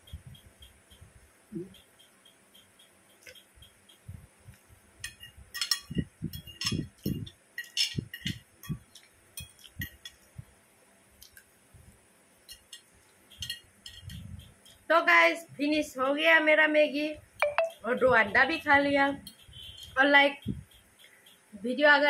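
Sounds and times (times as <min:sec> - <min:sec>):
fork clinking on ceramic plate: 0:05.0 - 0:10.2, 0:12.4 - 0:14.8.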